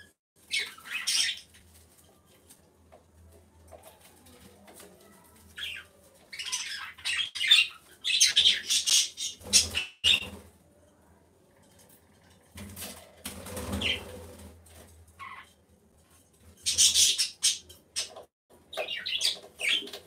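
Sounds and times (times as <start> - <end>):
pigeon feathers rustling on straw: 1.4 - 6.3.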